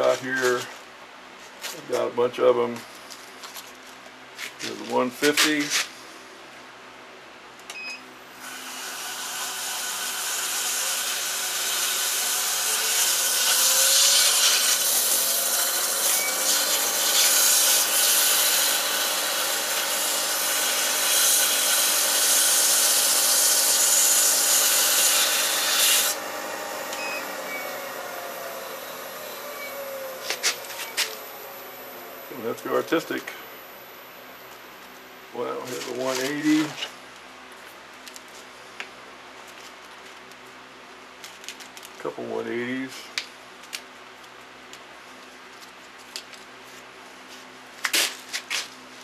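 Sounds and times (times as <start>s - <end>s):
lathe motor hum: 8.7s - 34.2s.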